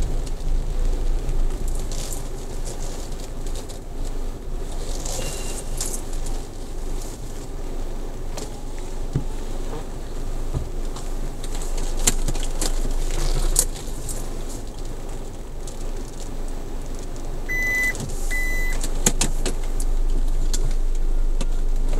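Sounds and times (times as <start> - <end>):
car engine and road rumble: 0.0 - 21.9
short high beeps: 17.5 - 18.8.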